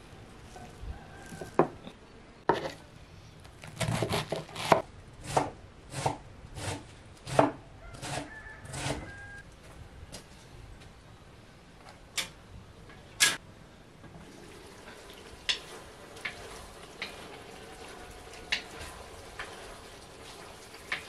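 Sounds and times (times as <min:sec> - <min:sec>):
food sizzling: 0:14.2 - 0:21.0.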